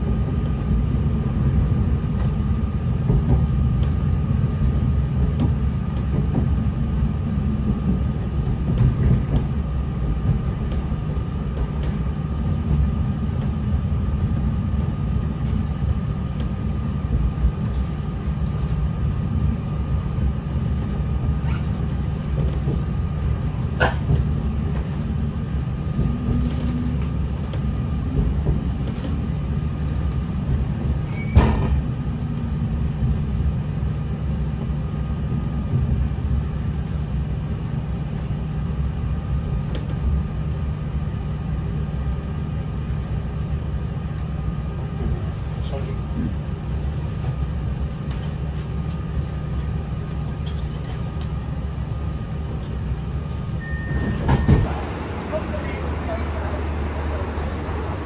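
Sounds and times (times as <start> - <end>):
train engine low rumble: 0.0 - 58.0.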